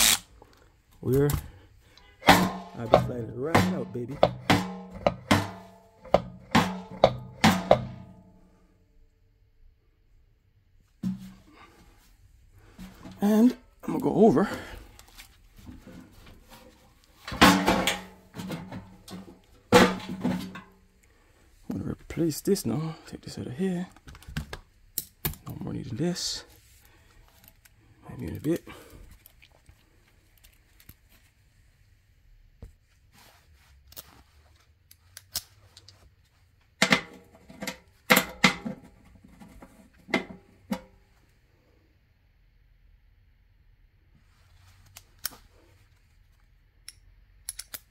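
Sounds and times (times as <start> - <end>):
loud metal clatters: 2.2 - 8.2, 17.3 - 20.7
sheet metal rustling and scraping: 15.5 - 20.8, 36.8 - 40.9.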